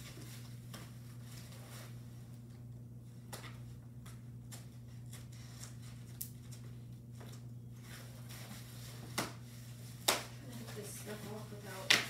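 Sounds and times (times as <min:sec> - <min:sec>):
paper rustling and crinkling: 0:04.6 - 0:12.0.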